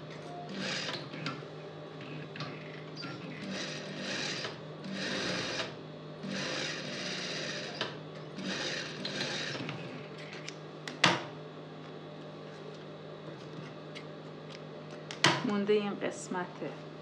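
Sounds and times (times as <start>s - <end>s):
sewing machine stitching: 0.5s - 1.4s, 3.0s - 10.0s.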